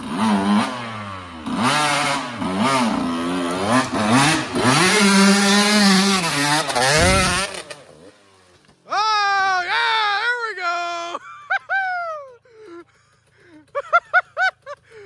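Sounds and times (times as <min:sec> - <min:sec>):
dirt bike engine revving: 0:00.0 - 0:08.5.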